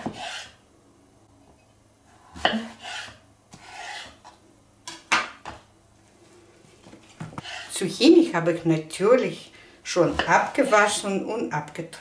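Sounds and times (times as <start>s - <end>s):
knife cutting strokes: 0.0s - 0.6s, 2.4s - 4.3s, 7.4s - 7.7s.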